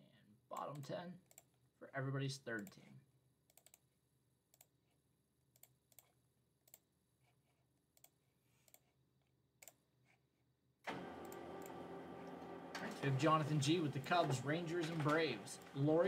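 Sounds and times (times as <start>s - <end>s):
computer mouse clicks: 0.6s - 1.6s, 3.5s - 3.8s, 4.5s - 4.8s, 5.6s - 6.9s, 7.9s - 8.9s, 9.6s - 9.8s.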